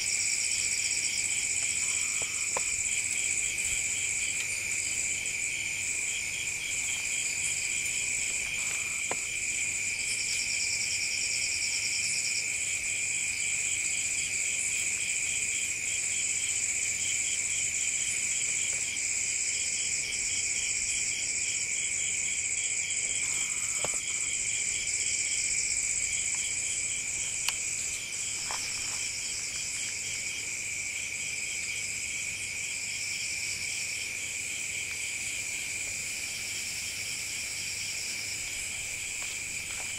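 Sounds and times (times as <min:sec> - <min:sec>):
pulsing insect chirp: 0:00.0 - 0:39.9
insects shrill trilling: 0:22.8 - 0:30.4.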